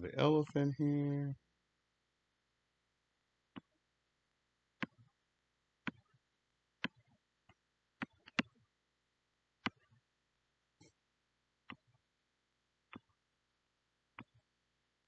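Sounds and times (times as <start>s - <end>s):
computer mouse clicks: 3.5s - 3.7s, 4.8s - 5.1s, 5.8s - 6.2s, 6.8s - 8.6s, 9.6s - 10.0s, 11.7s - 12.0s, 12.9s - 13.2s, 14.2s - 14.4s.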